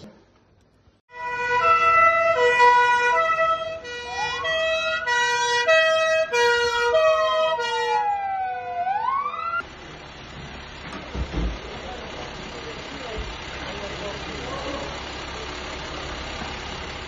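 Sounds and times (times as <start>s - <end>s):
two-tone hi-lo police siren: 1.1s - 9.6s
wailing siren: 1.1s - 9.6s.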